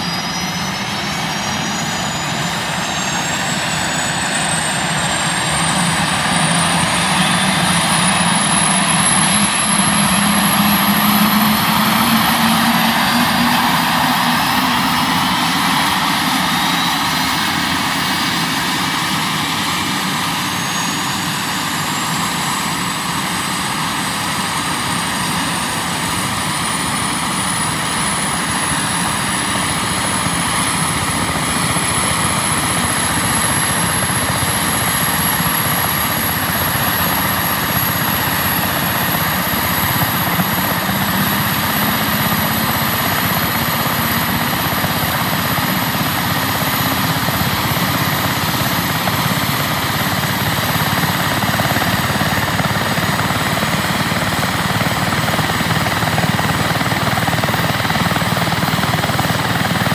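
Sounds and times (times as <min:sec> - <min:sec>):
loud rushing noise: 0:00.0 - 0:20.6
helicopter turbine whine: 0:00.0 - 0:59.9.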